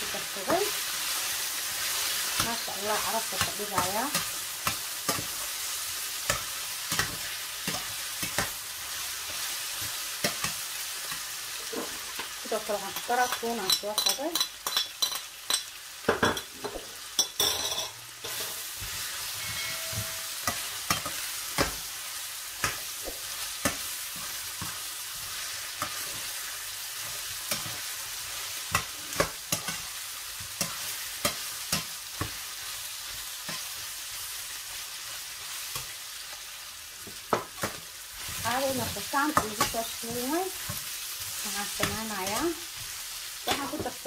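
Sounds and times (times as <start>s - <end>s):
chicken sizzling in a frying pan: 0.0s - 44.0s
spatula scraping and knocking on pan: 16.1s - 21.9s.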